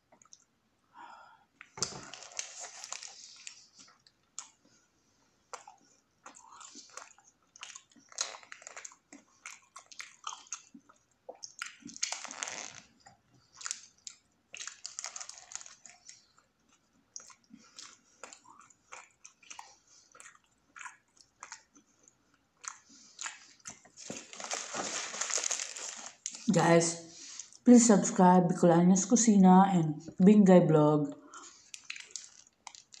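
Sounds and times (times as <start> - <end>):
chewing and crunching food: 0.0 - 0.6, 1.5 - 26.5, 31.3 - 33.0
wet mouth clicks: 5.5 - 12.7.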